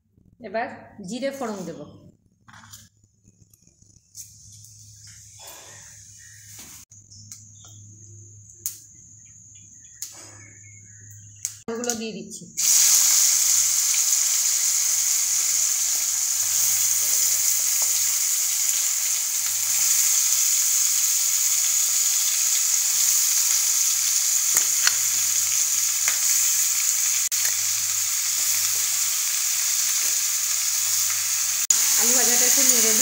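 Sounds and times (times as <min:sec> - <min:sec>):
potato wedges sizzling in oil: 0:12.6 - 0:33.0.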